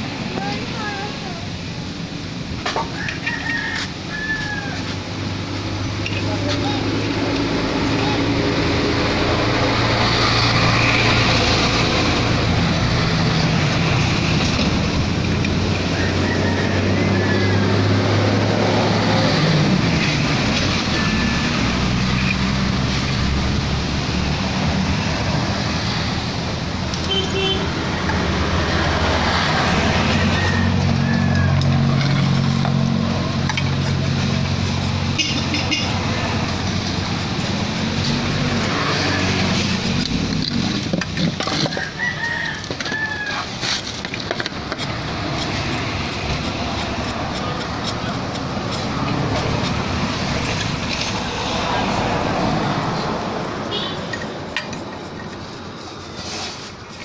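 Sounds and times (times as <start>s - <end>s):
engine hum: 0.0s - 57.0s
traffic noise: 0.0s - 57.0s
rooster crowing: 2.8s - 5.0s, 15.8s - 18.8s, 29.8s - 32.0s, 41.6s - 43.6s.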